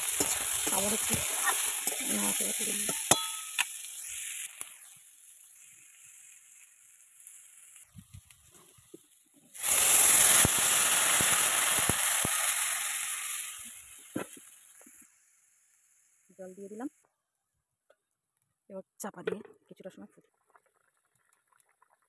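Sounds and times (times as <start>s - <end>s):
water poured into hot pan: 0.0s - 16.1s
loud sizzle: 0.0s - 17.0s.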